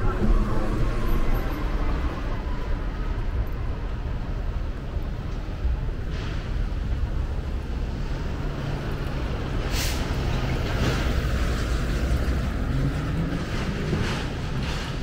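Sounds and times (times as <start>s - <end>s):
traffic rumble: 0.0s - 15.0s
short hissing sounds: 9.7s - 10.1s.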